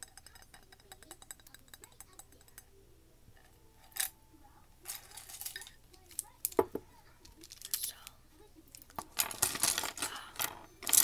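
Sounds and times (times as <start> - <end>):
wooden brush handles rattling: 9.0 - 11.0.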